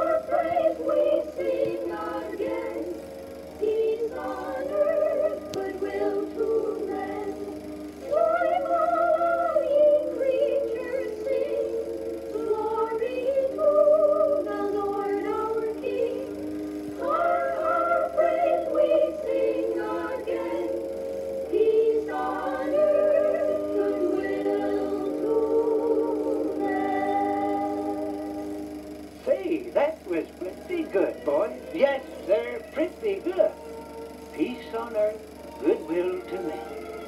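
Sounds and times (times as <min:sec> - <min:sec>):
choir singing in parts: 0:00.0 - 0:28.6.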